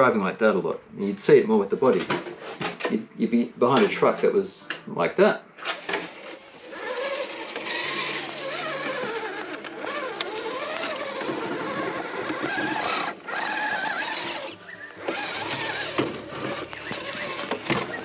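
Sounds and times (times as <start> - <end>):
toy car motor whining: 5.6 - 18.0.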